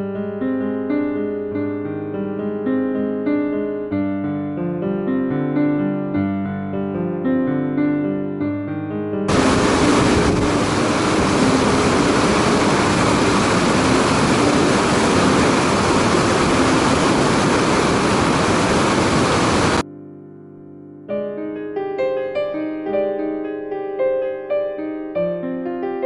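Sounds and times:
soft piano music: 0.0s - 18.3s, 19.7s - 26.0s
stream rushing over boulders: 9.3s - 19.8s.

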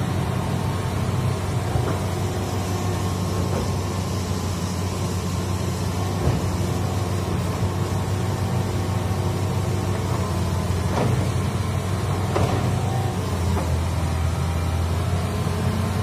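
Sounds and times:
excavator diesel engine droning: 0.0s - 16.0s.

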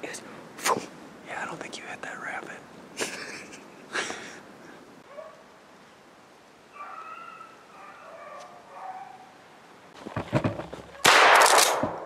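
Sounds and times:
distant dogs baying: 5.0s - 5.5s, 6.7s - 9.4s.

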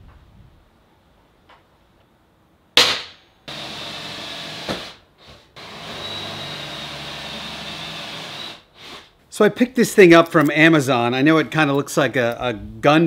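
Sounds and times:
sharp knock: 2.8s - 3.2s
electric drill drilling sheet metal: 3.5s - 5.0s, 5.6s - 9.1s.

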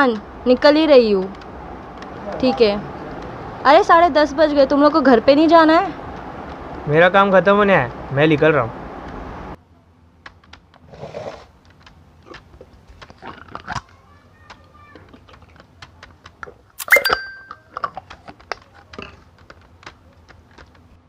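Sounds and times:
keyboard typing: 16.8s - 17.6s.

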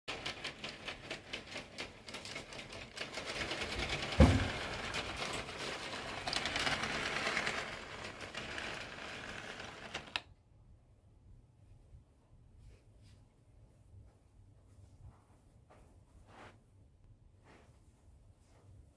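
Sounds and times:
model train wheels clattering: 0.1s - 10.2s
small electric motors running: 5.6s - 10.2s.

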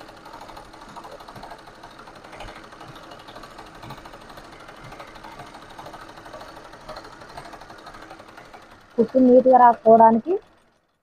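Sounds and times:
sewing machine stitching: 0.0s - 11.0s.

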